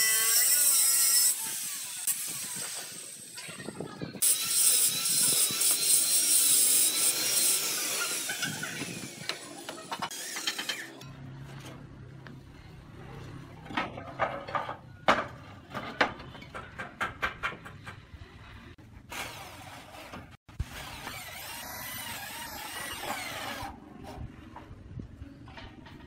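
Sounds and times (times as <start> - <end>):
roof tiles knocking and clacking: 13.7 - 18.1.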